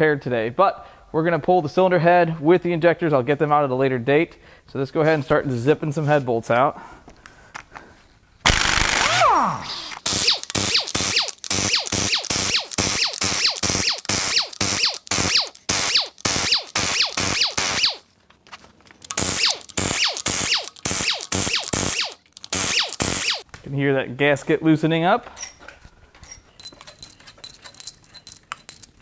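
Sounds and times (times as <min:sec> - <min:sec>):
impact wrench hammering: 0:08.5 - 0:18.0, 0:19.1 - 0:23.4
impact wrench free-spinning whine: 0:08.5 - 0:18.1, 0:19.0 - 0:23.4.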